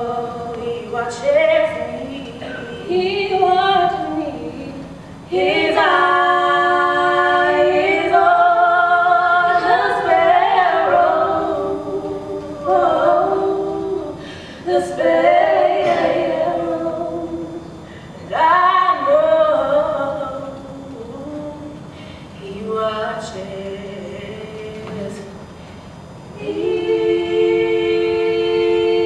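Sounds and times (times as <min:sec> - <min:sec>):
woman singing unaccompanied: 0:00.0 - 0:25.3
short breaths: 0:14.2 - 0:14.7.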